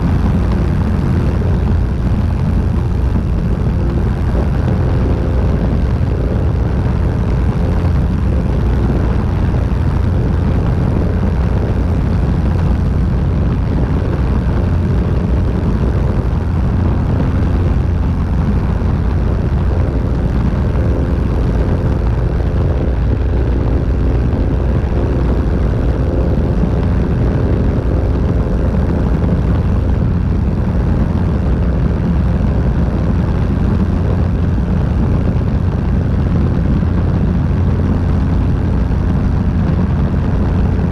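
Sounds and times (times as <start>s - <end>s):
airflow rushing over microphone: 0.0s - 40.9s
propeller aircraft engine: 0.0s - 40.9s.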